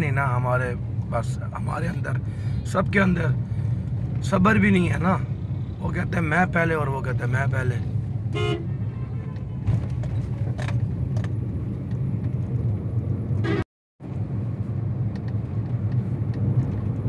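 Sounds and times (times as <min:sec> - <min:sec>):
car engine and tyres rumbling: 0:00.0 - 0:17.0.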